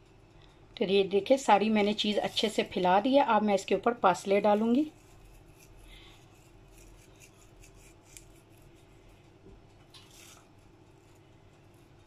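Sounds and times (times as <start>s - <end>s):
dried herbs rustling: 1.4s - 3.1s.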